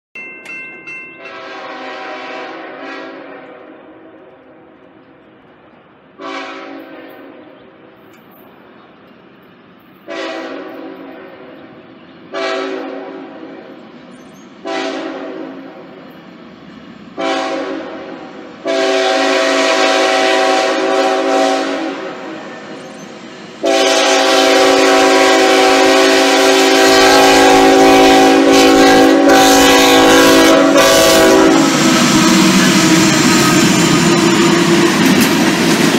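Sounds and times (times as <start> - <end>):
locomotive air horn blasts: 1.2 - 4.0, 6.2 - 7.5, 10.1 - 11.5, 12.3 - 13.8, 14.6 - 16.0, 17.2 - 22.7, 23.6 - 35.0.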